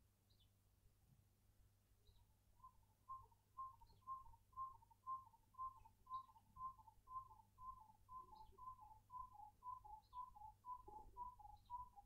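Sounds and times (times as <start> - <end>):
bird hooting calls: 2.6 - 12.0.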